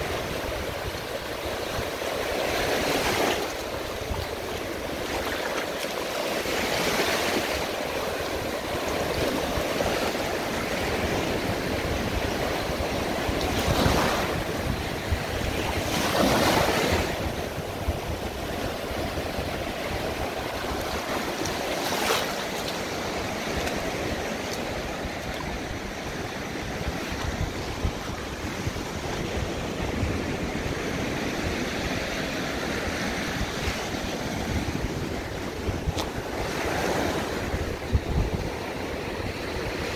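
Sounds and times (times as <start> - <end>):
waves breaking on beach: 0.0 - 39.9
wind buffeting microphone: 0.0 - 39.9.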